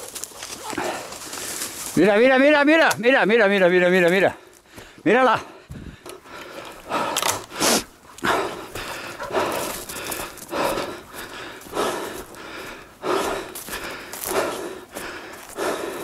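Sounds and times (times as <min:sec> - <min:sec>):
footsteps in dry leaves: 0:00.0 - 0:02.5, 0:08.8 - 0:16.0
heavy breathing: 0:00.6 - 0:02.0, 0:04.2 - 0:16.0.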